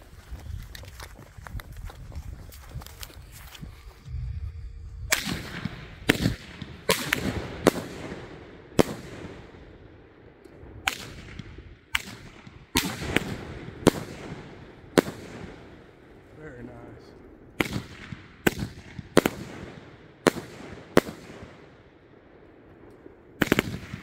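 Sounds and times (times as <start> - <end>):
fireworks bangs: 5.1 - 17.0, 17.6 - 24.0.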